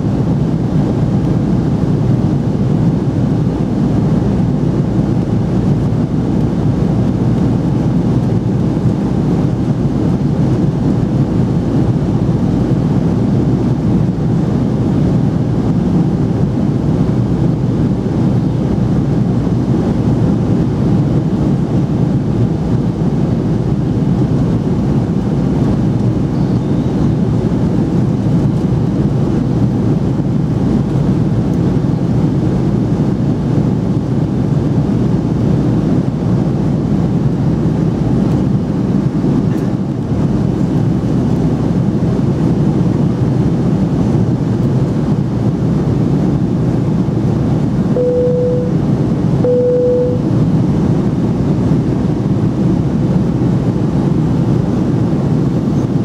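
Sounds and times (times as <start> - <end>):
airplane cabin roar: 0.0 - 56.0
chime tones: 48.0 - 48.8.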